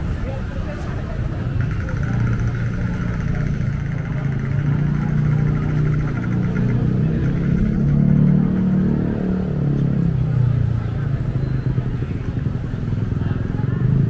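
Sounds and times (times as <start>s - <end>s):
motorbikes and cars passing: 0.0s - 14.0s.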